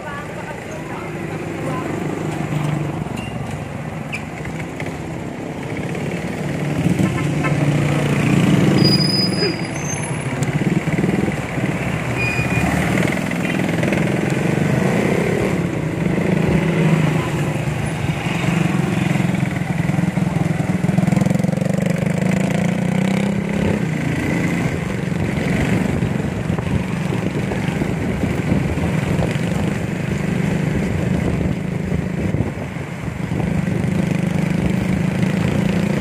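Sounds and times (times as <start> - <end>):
vehicles passing: 0.0 - 36.0
motorcycle engine running: 10.2 - 36.0.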